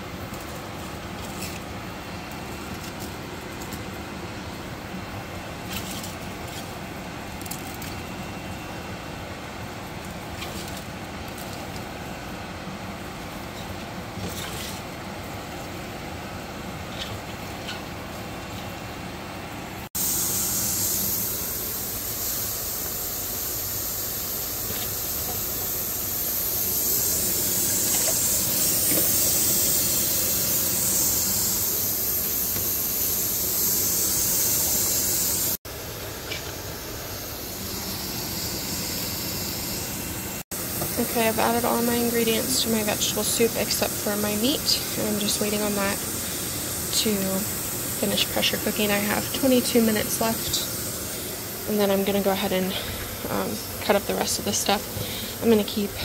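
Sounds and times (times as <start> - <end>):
pressure cooker hissing: 19.8 - 56.0.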